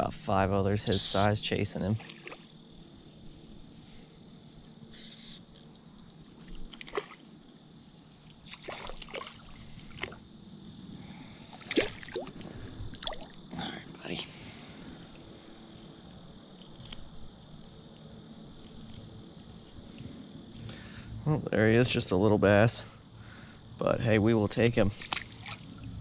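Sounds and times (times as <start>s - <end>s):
water splashing and sloshing: 1.9s - 2.5s, 6.3s - 7.3s, 8.3s - 10.2s, 11.5s - 13.4s, 24.9s - 25.9s
fish thrashing at surface: 8.5s - 10.2s.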